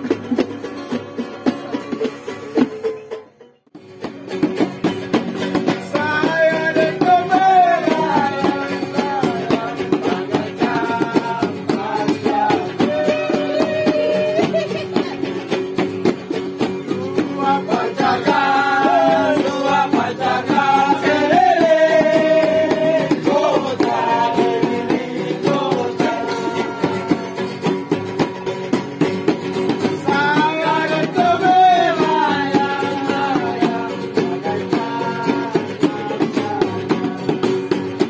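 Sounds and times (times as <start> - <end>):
strummed acoustic guitars: 0.0 - 38.0
person singing: 5.9 - 15.2, 16.9 - 27.6, 30.0 - 37.5.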